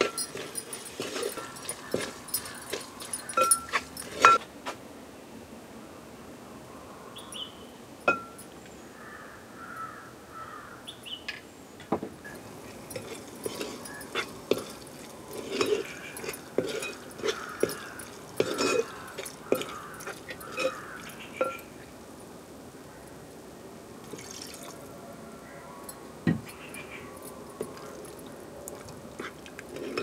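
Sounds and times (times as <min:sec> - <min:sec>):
ladle scraping metal pot: 0:00.0 - 0:04.4, 0:12.3 - 0:21.8, 0:29.2 - 0:30.0
metal spoon clinking bowl: 0:00.0 - 0:04.4, 0:08.1 - 0:08.5, 0:12.3 - 0:21.8, 0:25.9 - 0:30.0.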